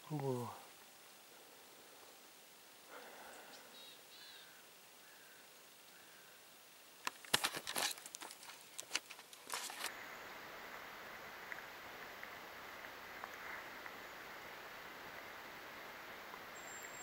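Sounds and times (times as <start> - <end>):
quiet woodland background: 0.0 - 17.0
camera and clothing rustling: 7.0 - 9.9.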